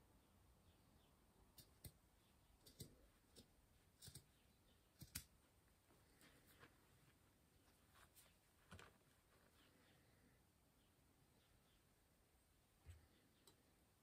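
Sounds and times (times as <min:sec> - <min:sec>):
scissors snipping yarn: 0:01.5 - 0:02.0, 0:02.6 - 0:05.4.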